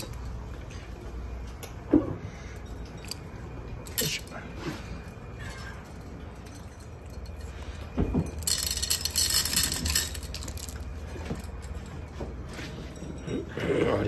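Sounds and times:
small hard objects jingling: 0:08.2 - 0:12.1.

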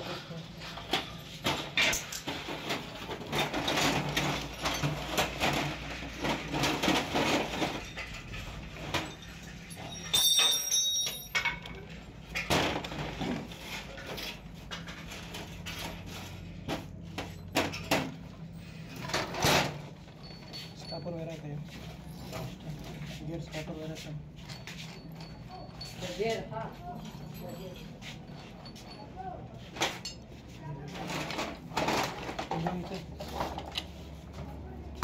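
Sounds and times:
metal tools clattering on workbench: 0:00.6 - 0:23.1, 0:24.3 - 0:33.9
bright metallic ring: 0:09.2 - 0:11.7.

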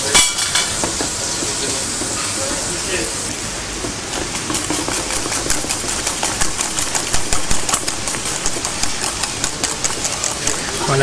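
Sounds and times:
whisk clicking in metal bowl: 0:04.1 - 0:11.0.

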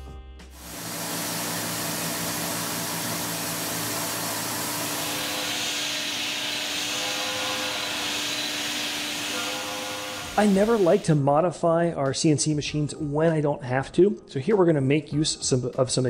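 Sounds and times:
coolant spray hissing: 0:00.6 - 0:11.2
mill spindle whining: 0:00.6 - 0:11.2.

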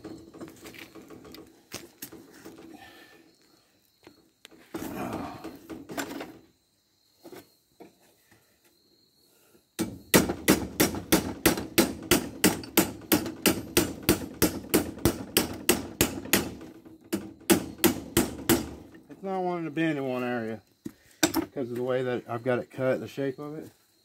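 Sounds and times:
hammer beating metal pipe: 0:09.8 - 0:18.8.

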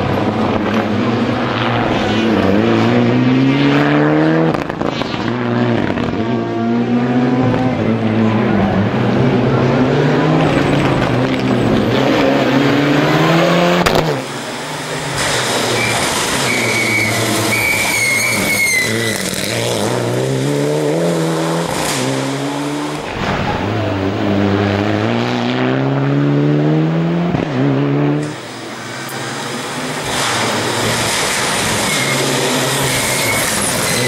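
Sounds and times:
car engine at full throttle: 0:00.0 - 0:34.0
tyre squeal: 0:15.2 - 0:19.7, 0:30.2 - 0:34.0.

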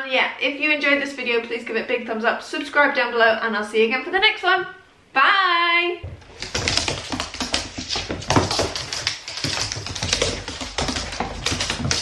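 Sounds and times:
dog claws on laminate floor: 0:06.0 - 0:12.0.

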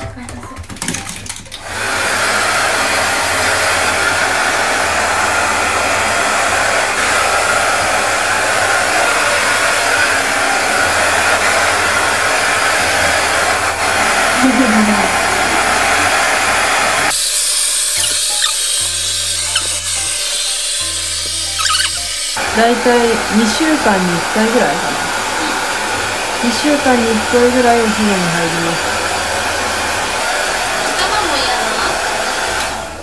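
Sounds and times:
hair dryer blowing: 0:01.6 - 0:33.0.

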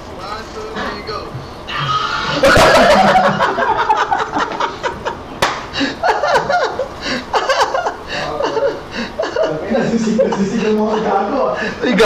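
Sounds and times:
man laughing hard: 0:01.8 - 0:12.0
sharp smack: 0:05.4 - 0:05.6.

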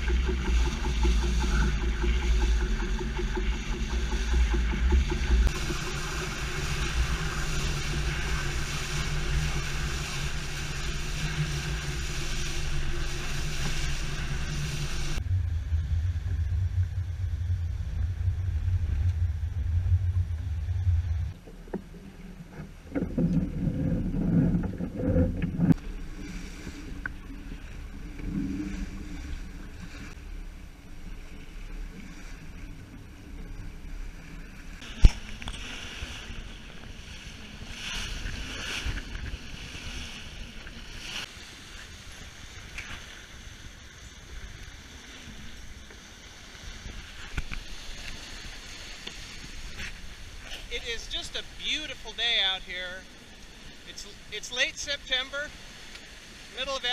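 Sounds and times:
wind buffeting microphone: 0:00.0 - 0:21.4, 0:34.8 - 0:54.4
water rushing along hull: 0:00.0 - 0:56.9.

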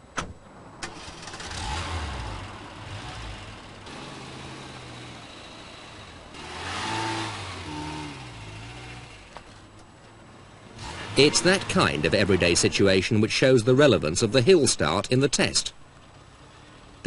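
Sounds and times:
car engine revving: 0:00.9 - 0:09.6, 0:10.5 - 0:13.0.

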